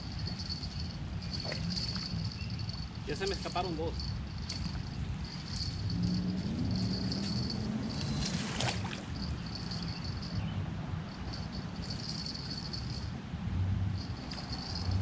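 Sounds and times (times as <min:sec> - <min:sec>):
fishing reel whirring: 0:00.0 - 0:10.4, 0:11.1 - 0:13.1
wind rumble on microphone: 0:00.0 - 0:15.0
water splashing: 0:06.5 - 0:09.4.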